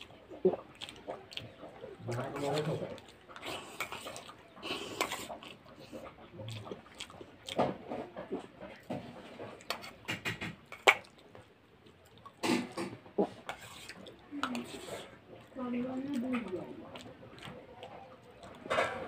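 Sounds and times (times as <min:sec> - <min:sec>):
wet chewing and slurping: 0:00.0 - 0:19.0
metal spoon scraping steel bowl: 0:13.4 - 0:15.2.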